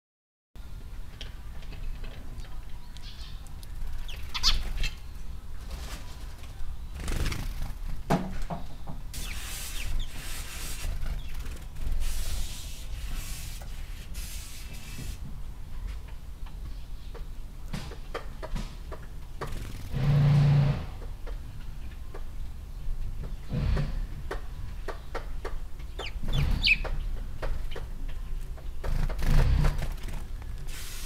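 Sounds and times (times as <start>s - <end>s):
hiss: 9.1s - 11.0s, 12.0s - 15.2s, 30.7s - 31.0s.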